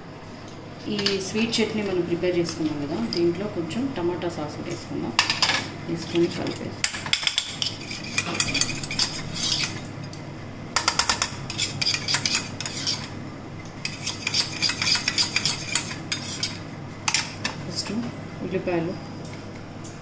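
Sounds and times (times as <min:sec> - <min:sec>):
spoon stirring in a bowl: 0:06.0 - 0:09.9, 0:10.8 - 0:13.2, 0:13.8 - 0:17.6.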